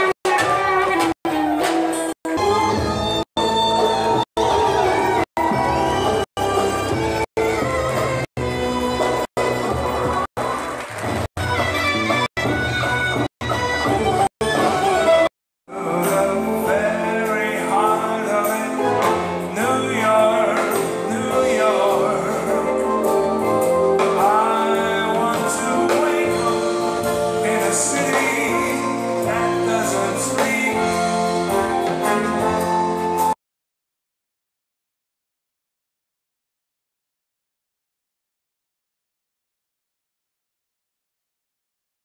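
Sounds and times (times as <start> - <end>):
live band music: 0.0 - 33.4
man singing into a microphone: 15.7 - 32.0.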